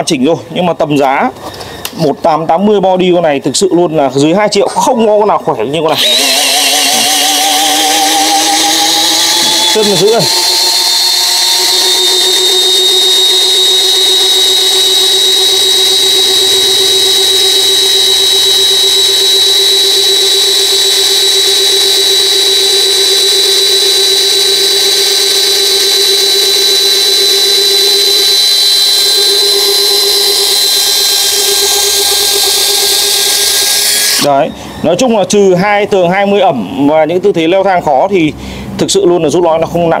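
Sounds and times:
cordless drill motor whine: 5.8s - 35.0s.

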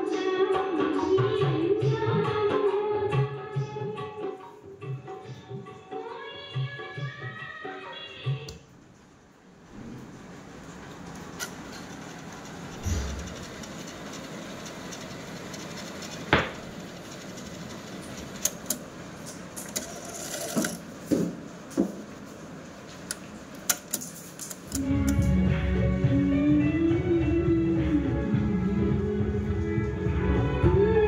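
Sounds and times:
cassette deck mechanical whir: 11.0s - 20.9s
tape music playing: 12.8s - 14.5s.

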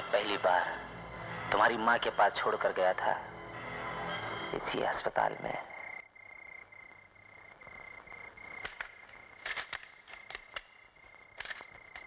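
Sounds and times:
high cricket trill: 4.1s - 12.0s.

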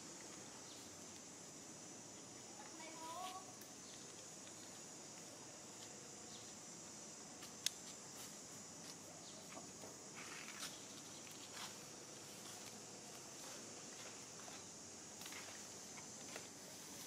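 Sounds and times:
steady high hiss: 0.0s - 17.0s.

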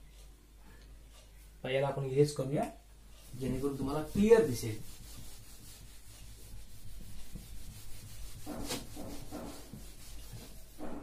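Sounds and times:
eraser rubbing on whiteboard: 3.2s - 11.0s.

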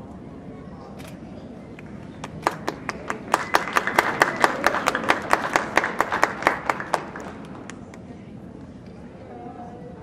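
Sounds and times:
fast hand clapping: 2.2s - 7.8s
crowd applause: 2.2s - 7.9s.

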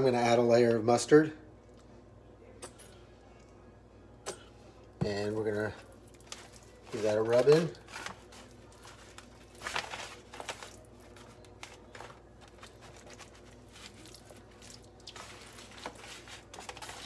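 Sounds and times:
wet squishing and rubbing: 5.8s - 17.0s.

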